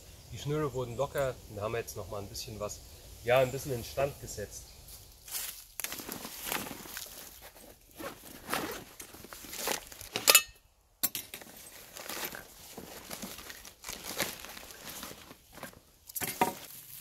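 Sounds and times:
backpack fabric rustling: 5.3 - 10.4, 11.3 - 17.0.

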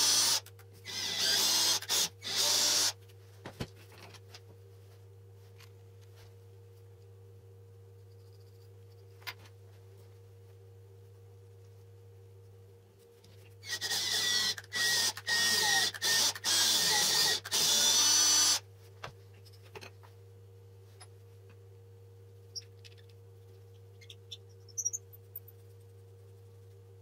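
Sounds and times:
cordless drill boring into wood: 0.0 - 3.0, 13.7 - 18.6.

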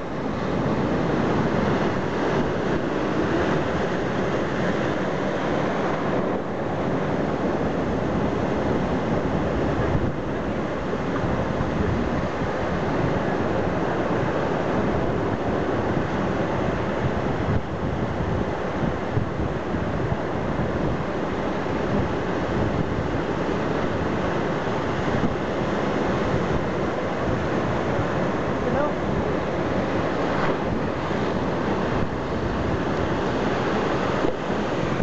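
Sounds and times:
ocean surf breaking on rocks: 0.0 - 35.0
water surging across rock shelves: 0.0 - 35.0.

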